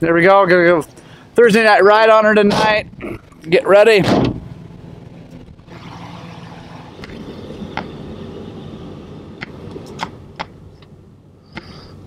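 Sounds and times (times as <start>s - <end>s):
van engine hum from cab: 0.0s - 12.0s
sharp clicks and knocks: 9.4s - 10.9s.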